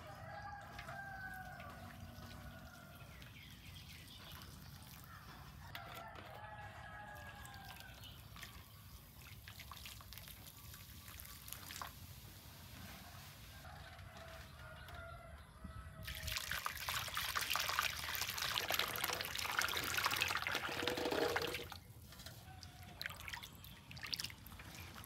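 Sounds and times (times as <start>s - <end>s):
faint rooster crowing: 0.0s - 3.4s, 5.0s - 8.2s, 12.8s - 16.2s, 22.3s - 23.2s.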